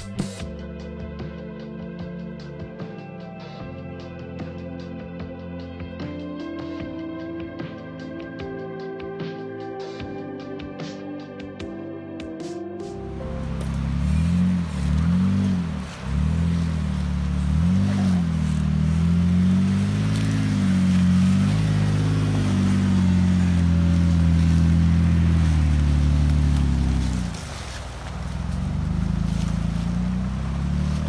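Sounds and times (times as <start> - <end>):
off-road vehicle engine revving: 13.0 - 31.0.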